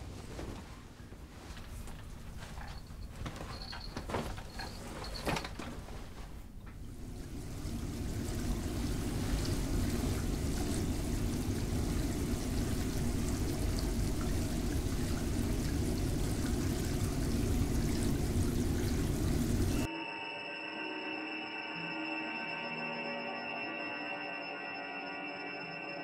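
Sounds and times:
running water rushing: 6.8 - 19.9.

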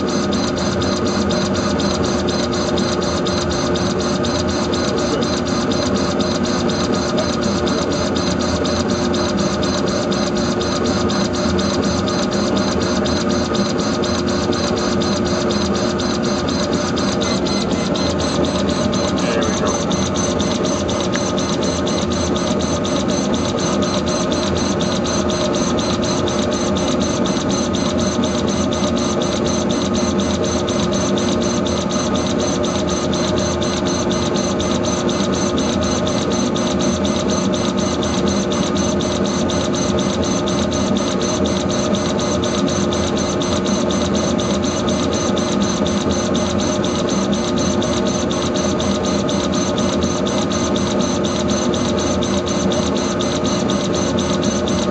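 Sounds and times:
laser engraver whine: 0.0 - 54.9
fast even buzz: 11.5 - 26.4.

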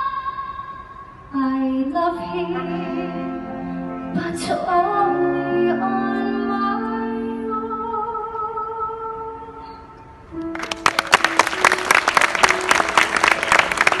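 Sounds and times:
audience applause: 10.5 - 14.0.

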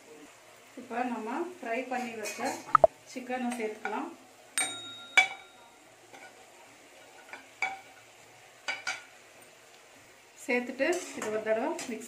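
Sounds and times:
metal spatula clinking on plate: 4.6 - 6.4.

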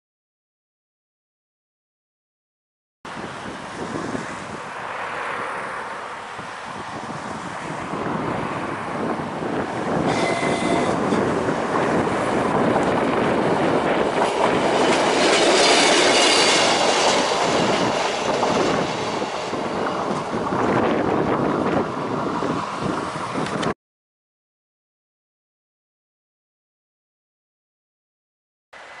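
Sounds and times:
train wheel and rail noise: 3.1 - 23.7, 28.8 - 29.0
train wheel squeal: 10.0 - 11.4, 14.6 - 20.3, 28.8 - 29.0.

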